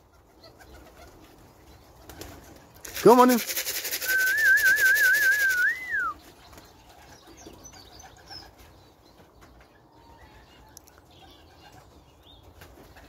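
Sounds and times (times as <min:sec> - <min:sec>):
feed tin rattling: 0:02.8 - 0:04.3
warbling whistle: 0:03.7 - 0:06.2.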